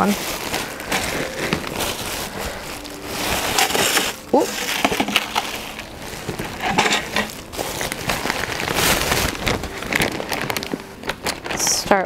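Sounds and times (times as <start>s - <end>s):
plastic bag rustling: 0.0s - 12.0s.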